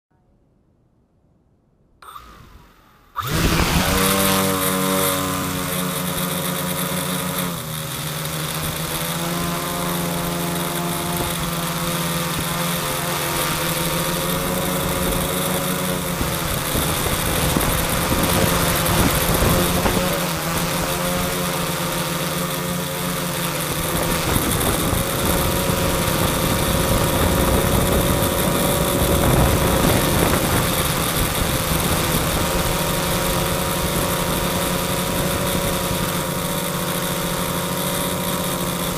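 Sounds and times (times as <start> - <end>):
quadcopter motors buzzing: 2.0 - 38.9.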